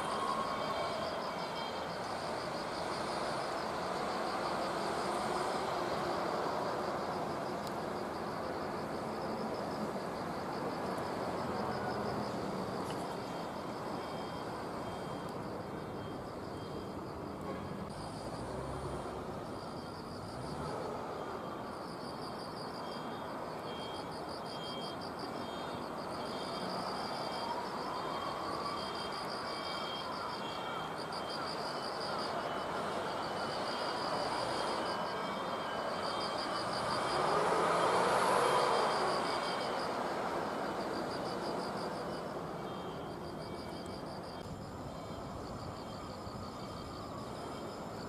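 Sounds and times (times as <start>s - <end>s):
insects chirping in trills: 0.0s - 48.0s.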